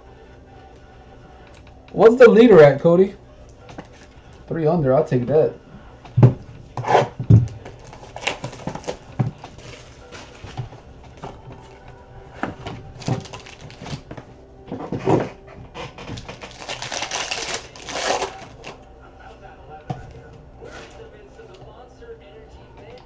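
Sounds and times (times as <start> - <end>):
cards rustling: 6.8 - 18.8.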